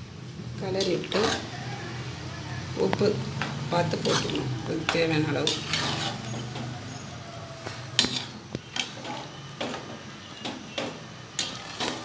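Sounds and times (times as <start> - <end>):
metal ladle scraping a pot: 0.8 - 1.5, 3.9 - 7.1, 8.0 - 12.0.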